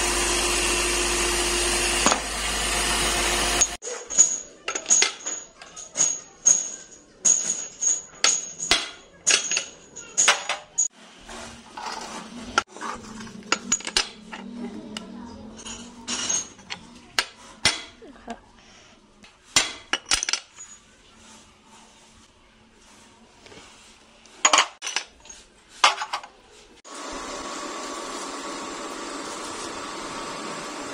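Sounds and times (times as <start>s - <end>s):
workshop machine running: 0.0s - 4.5s, 9.6s - 17.9s, 26.9s - 30.9s
metal pins clinking on steel tray: 3.9s - 10.9s, 15.6s - 18.0s, 19.6s - 20.8s.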